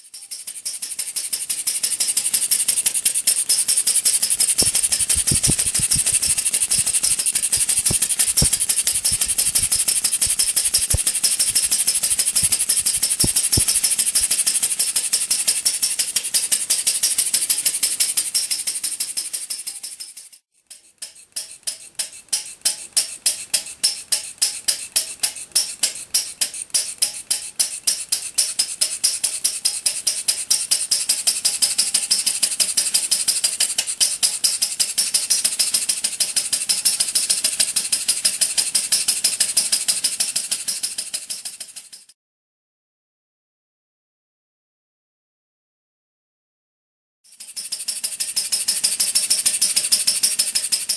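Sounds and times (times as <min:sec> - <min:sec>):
mechanical rattle: 0:00.0 - 0:42.1, 0:47.3 - 0:50.9
small engine firing beats: 0:00.2 - 0:19.0.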